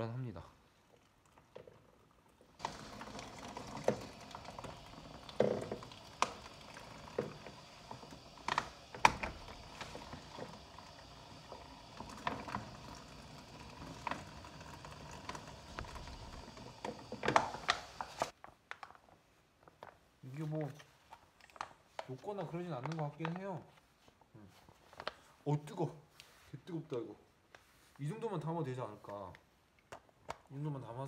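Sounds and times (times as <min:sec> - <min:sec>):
water running into plastic bag: 0:01.5 - 0:18.3.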